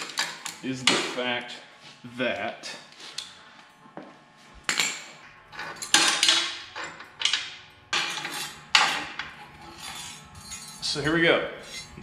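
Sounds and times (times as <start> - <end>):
metal tools clinking: 9.6 - 12.0.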